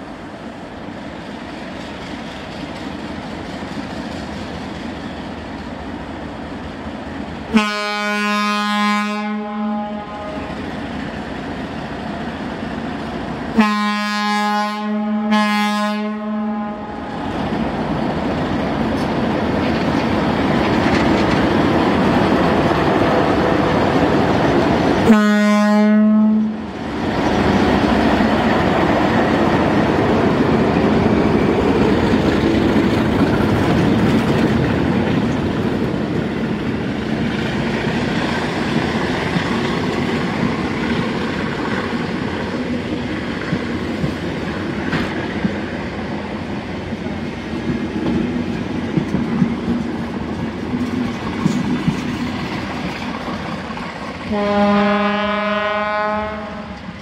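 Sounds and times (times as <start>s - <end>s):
diesel locomotive engine: 0.0s - 57.0s
locomotive horn blasts: 7.5s - 10.5s, 13.6s - 17.1s, 25.0s - 26.6s, 54.3s - 56.8s.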